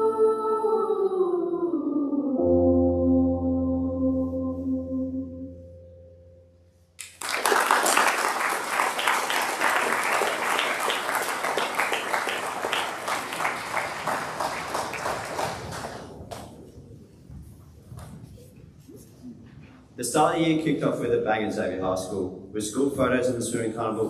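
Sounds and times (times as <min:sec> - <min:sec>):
held sung chord: 0:00.0 - 0:07.0
audience applauding: 0:07.0 - 0:16.6.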